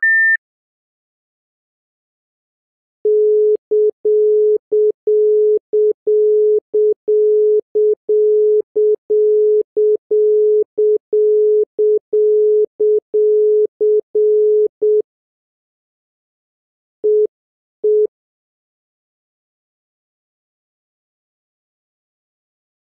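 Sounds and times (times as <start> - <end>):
telephone tone beeping: 0.0 - 0.4, 3.1 - 15.0.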